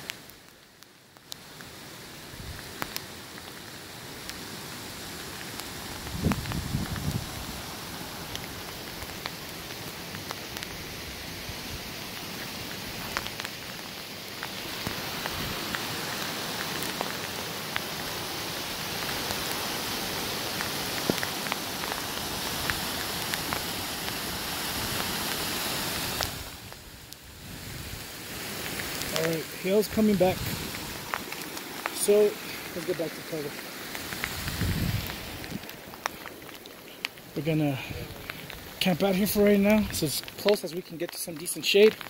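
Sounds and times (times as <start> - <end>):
hailstones ticking on rocks: 0.0 - 42.0
steady rushing hiss: 0.0 - 42.0
mountain creek rushing: 1.3 - 42.0.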